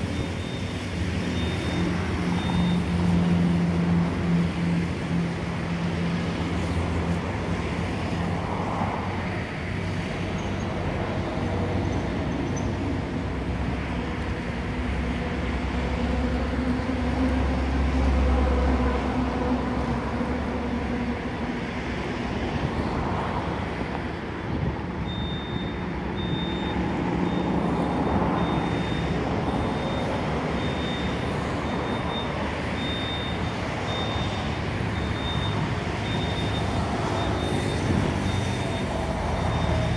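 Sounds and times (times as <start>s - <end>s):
cars passing: 0.0s - 39.9s
vehicle engines rumbling: 0.0s - 39.9s
high electronic beep: 25.0s - 39.8s.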